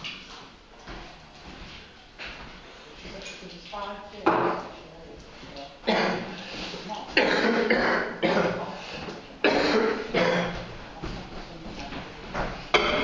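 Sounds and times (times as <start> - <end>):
person coughing: 5.9 - 6.3, 7.2 - 8.7, 9.4 - 10.6.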